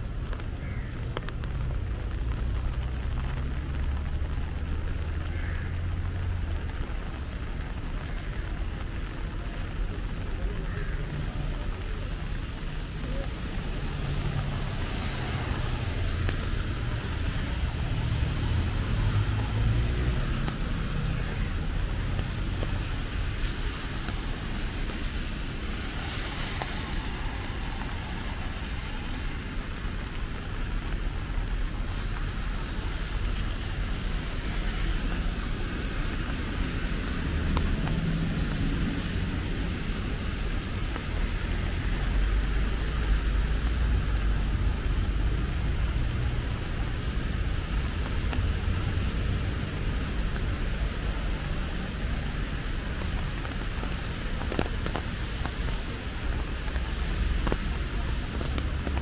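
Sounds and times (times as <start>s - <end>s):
low rumble of traffic: 0.0s - 59.0s
cars passing with tyre hiss: 8.3s - 59.0s.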